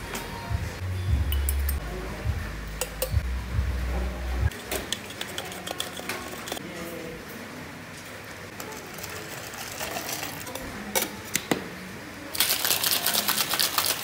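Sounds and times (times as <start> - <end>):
low hum: 0.5 - 4.5
spoon clinking against cup: 1.3 - 1.8, 2.8 - 3.2.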